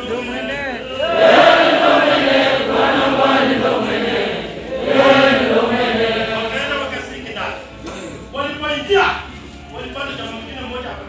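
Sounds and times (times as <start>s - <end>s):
congregation singing: 0.8s - 7.4s.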